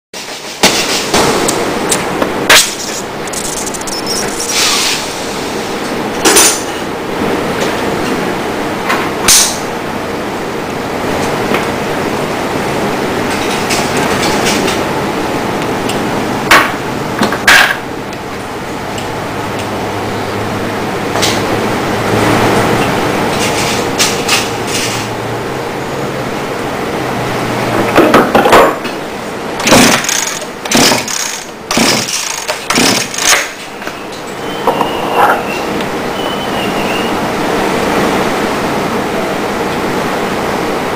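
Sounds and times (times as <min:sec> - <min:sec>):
small engine cranking: 0:29.7 - 0:33.5.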